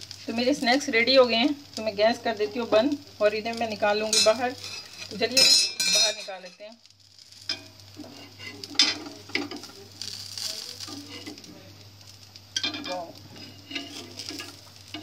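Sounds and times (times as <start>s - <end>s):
oil sizzling: 0.0s - 15.0s
metal spatula scraping iron pan: 4.1s - 6.3s, 12.6s - 15.0s.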